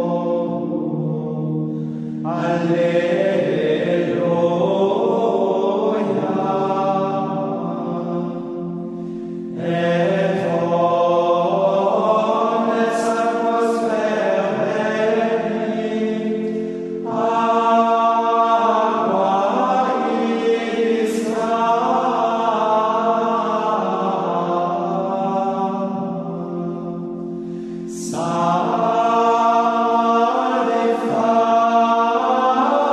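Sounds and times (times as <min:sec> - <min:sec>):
steady held chord: 0:00.0 - 0:32.9
voices singing plainchant: 0:00.0 - 0:32.9.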